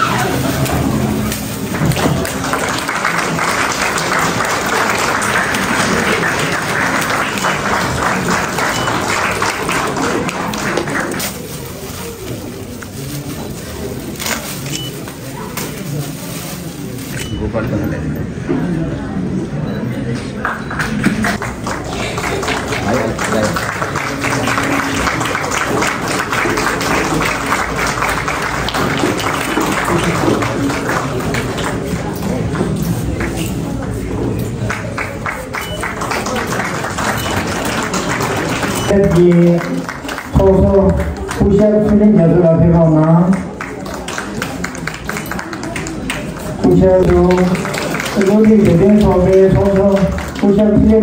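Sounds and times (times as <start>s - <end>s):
audience applauding: 0.0s - 11.6s, 20.4s - 41.7s, 43.0s - 50.9s
faint voices: 0.0s - 51.0s.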